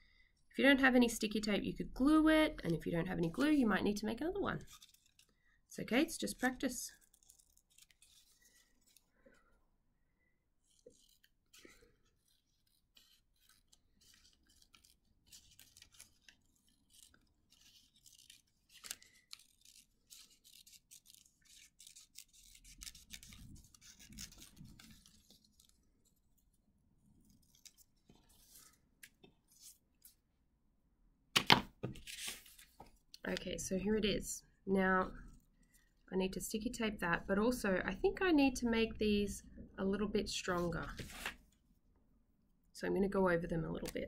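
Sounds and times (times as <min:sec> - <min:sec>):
cardboard rustling: 0:10.6 - 0:30.2, 0:31.8 - 0:33.0, 0:40.6 - 0:41.4.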